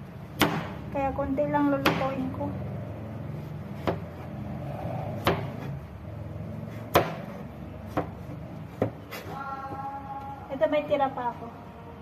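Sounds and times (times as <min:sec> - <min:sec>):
knife chopping on cutting board: 0:03.7 - 0:04.3, 0:05.1 - 0:05.8, 0:06.7 - 0:09.3.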